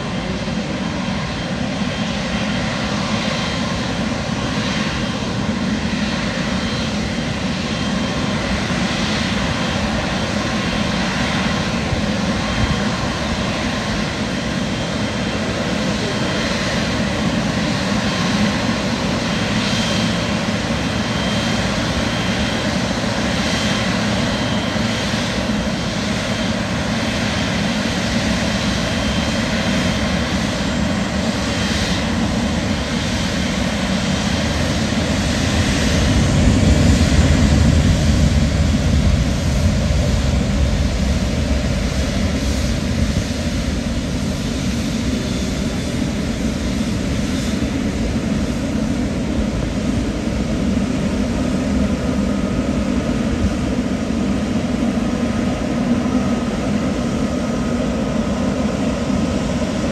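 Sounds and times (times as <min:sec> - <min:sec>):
jet engines running: 0:00.0 - 0:59.9.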